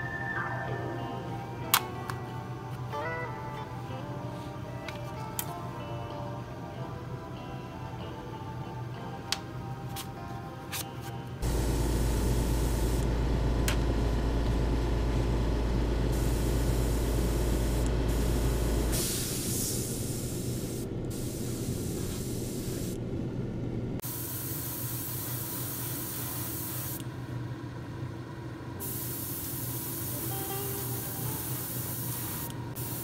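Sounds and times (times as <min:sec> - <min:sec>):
steady low hum: 0:11.3 - 0:30.1
airbrush hissing: 0:11.4 - 0:13.0, 0:16.1 - 0:23.0, 0:24.0 - 0:27.0, 0:28.8 - 0:33.0.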